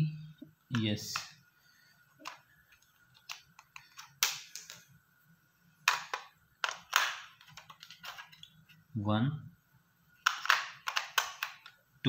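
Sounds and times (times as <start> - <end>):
batteries clicking into plastic toy: 10.2 - 11.8.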